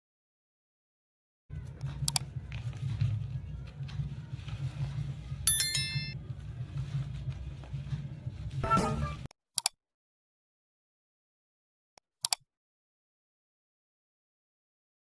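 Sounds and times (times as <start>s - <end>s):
paper rustling: 1.8s - 5.4s, 6.3s - 8.6s
sharp click: 9.6s - 9.8s, 12.2s - 12.4s.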